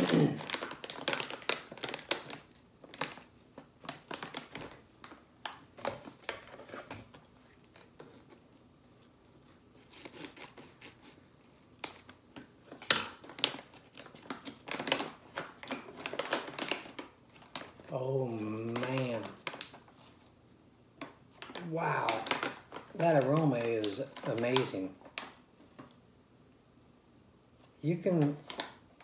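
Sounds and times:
coffee bag crinkling: 0.0 - 8.5, 9.8 - 20.3, 21.0 - 25.9, 28.0 - 29.0.

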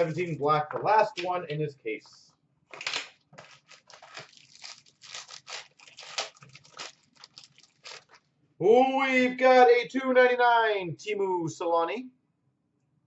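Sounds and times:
packaging crinkling and rustling: 2.7 - 8.3.

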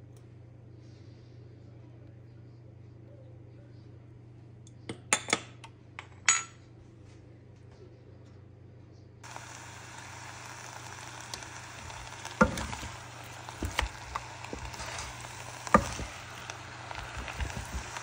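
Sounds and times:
food sizzling in a pot: 9.2 - 18.0
wooden spoon knocking pot: 11.9 - 18.0.

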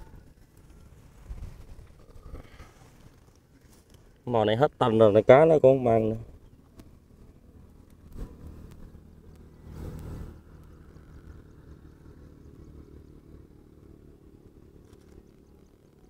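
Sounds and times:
low engine hum: 0.0 - 16.0.

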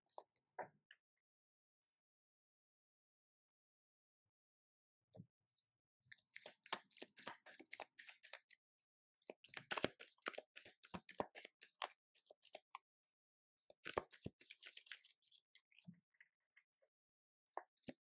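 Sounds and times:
cards being shuffled: 9.3 - 12.6.

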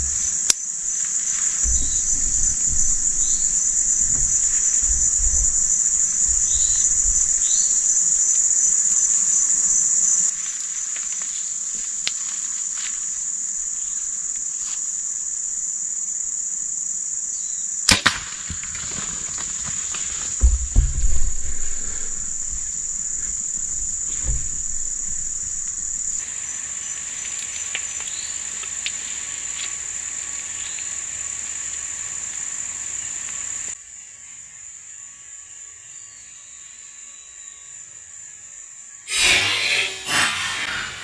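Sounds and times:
insects chirring: 0.0 - 41.0
gunshot double crack: 17.9 - 19.1.

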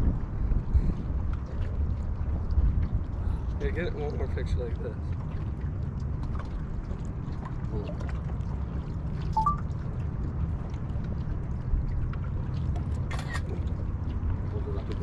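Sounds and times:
steady low rumble: 0.0 - 15.0
water lapping against boat hull: 0.0 - 15.0
two-note rising chirp: 9.4 - 9.6.

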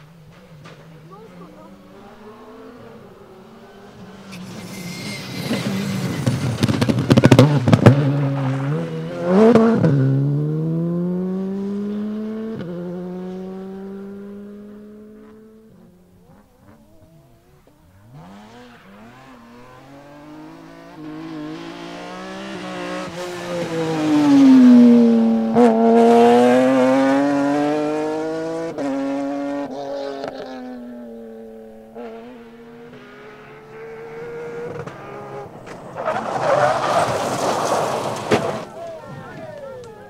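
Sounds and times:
rally car engine passing: 0.0 - 40.0
tyres sliding on loose gravel: 4.3 - 8.9, 34.9 - 40.0.

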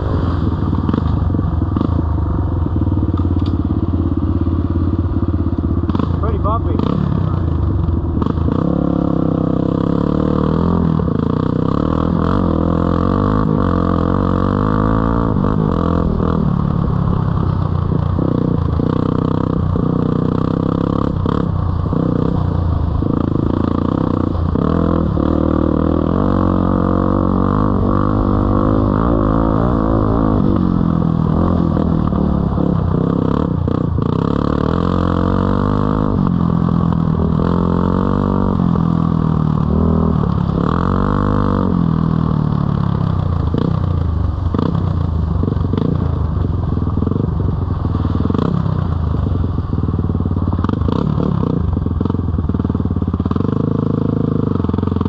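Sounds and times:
dirt bike engine revving: 5.8 - 42.4.

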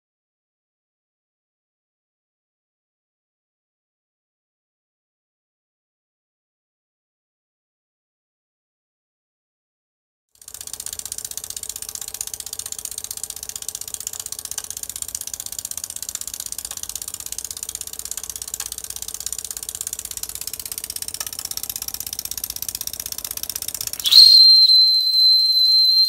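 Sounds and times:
steam engine running: 10.4 - 24.2
high steam whistle: 24.0 - 26.0.

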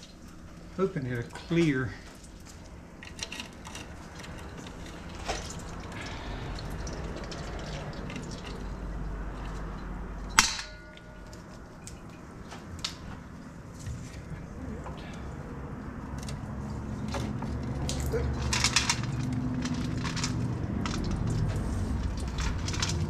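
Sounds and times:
fluid splashing into drain pan: 5.0 - 9.7
sharp metallic clank: 10.3 - 11.4.

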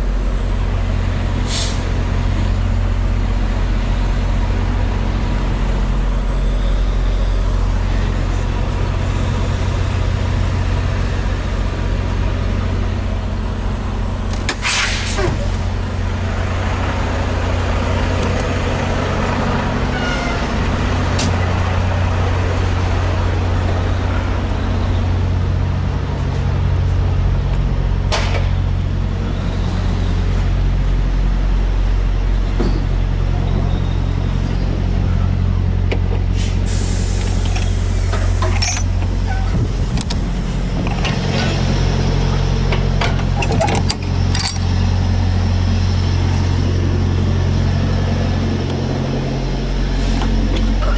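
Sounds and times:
diesel truck engine idling: 0.0 - 50.9
metal latch clanking: 42.7 - 44.7.

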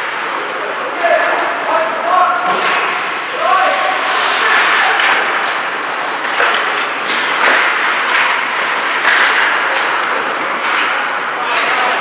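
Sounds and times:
knocks against hockey boards: 6.2 - 12.0.

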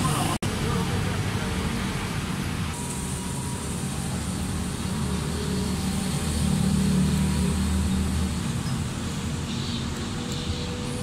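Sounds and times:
vehicle engine rumbling: 0.0 - 11.0.

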